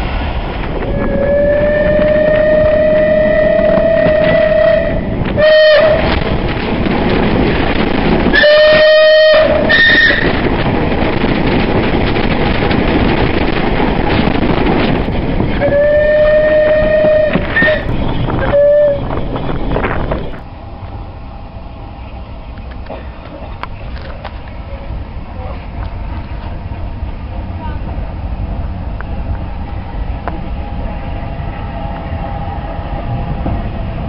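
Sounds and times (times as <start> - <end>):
train running: 0.0 - 34.0
steam whistle blasts: 1.0 - 6.1, 8.4 - 10.3, 15.6 - 19.1.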